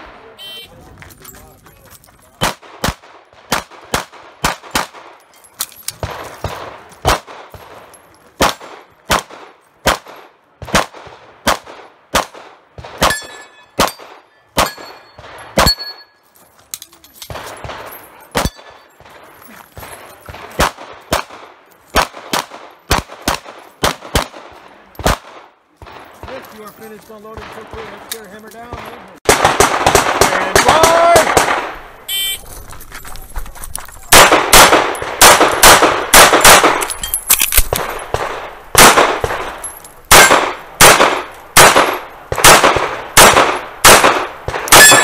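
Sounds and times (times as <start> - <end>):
metallic ding of steel targets: 13.1 - 16.2, 44.7 - 45.0
rapid pistol fire: 20.4 - 26.4, 29.2 - 31.9, 34.1 - 36.9, 37.7 - 45.0.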